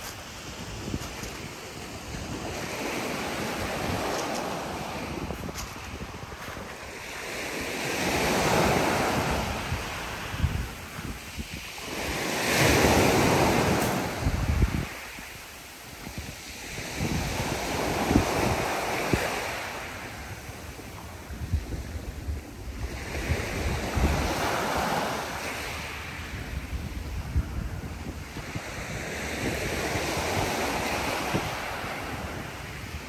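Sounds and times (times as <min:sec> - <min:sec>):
waves washing on shingle: 0:00.0 - 0:21.5
wind buffeting microphone: 0:00.0 - 0:33.0.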